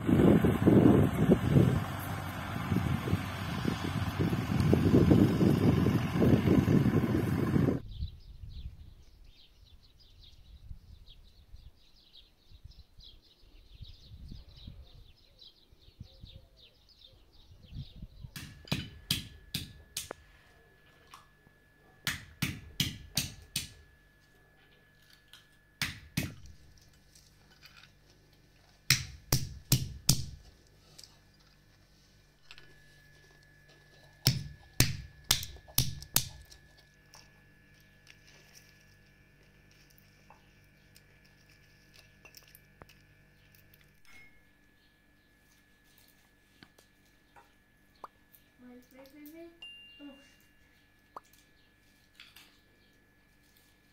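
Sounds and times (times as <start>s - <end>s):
faint bird chirping: 7.8s - 18.3s
stone cracking walnuts: 34.2s - 37.3s.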